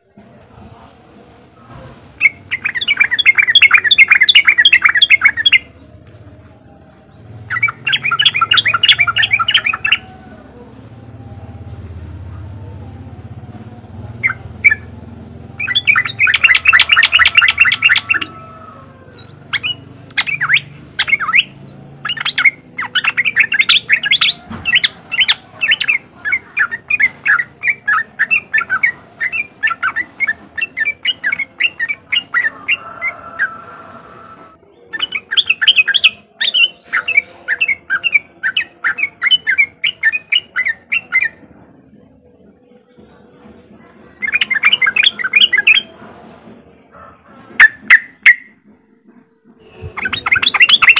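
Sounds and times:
bird chattering call: 7.5s - 10.2s, 15.6s - 33.6s, 49.7s - 50.9s.

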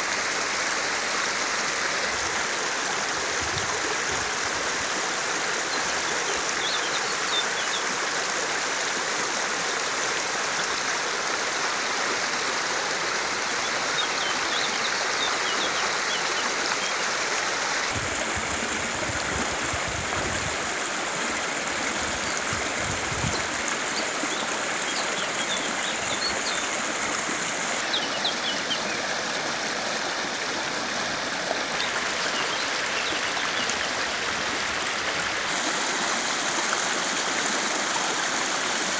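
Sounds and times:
river water running over rocks: 0.0s - 38.9s
small birds chirping: 27.8s - 29.0s.

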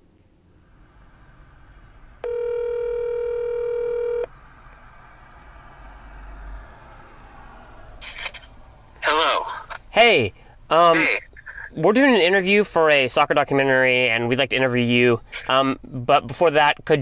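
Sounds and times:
telephone ringback tone: 2.2s - 4.3s.

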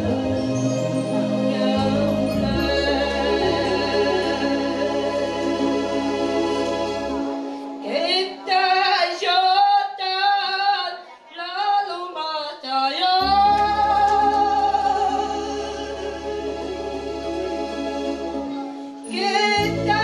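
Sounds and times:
woman singing into microphone: 0.0s - 5.4s, 7.8s - 16.2s, 19.1s - 20.0s
backing chords and bass: 0.0s - 7.8s, 13.2s - 18.6s.

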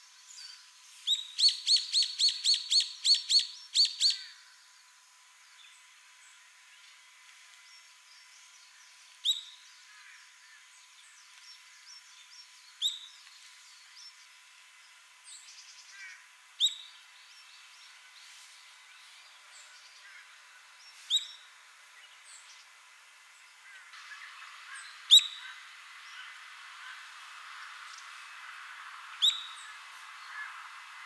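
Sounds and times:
fainter bird chirps: 24.0s - 27.0s.

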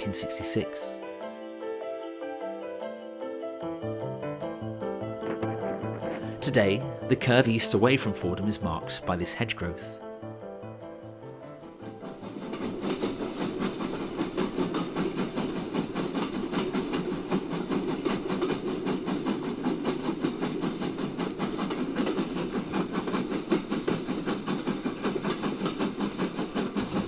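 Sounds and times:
steam train running: 0.0s - 27.0s.

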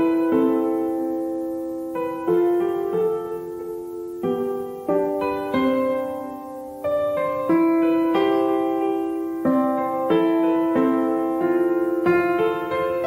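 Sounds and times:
calm piano music: 0.0s - 13.0s.

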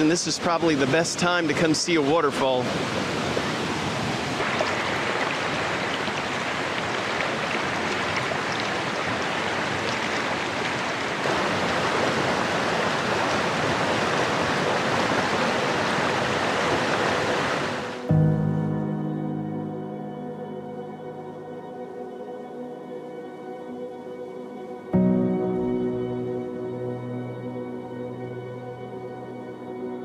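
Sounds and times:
water rushing over rocks: 0.0s - 18.1s.

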